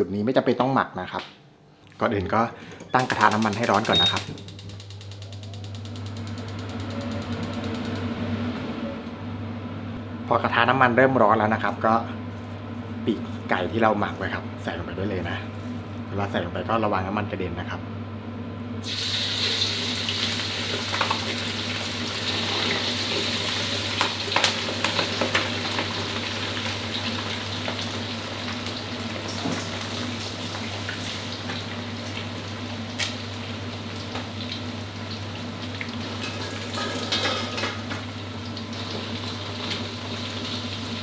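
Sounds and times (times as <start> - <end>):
steady low hum: 0.0 - 19.4
crackles and pops of frying: 3.0 - 8.1, 19.3 - 41.0
chicken deep-frying in hot oil: 18.8 - 41.0.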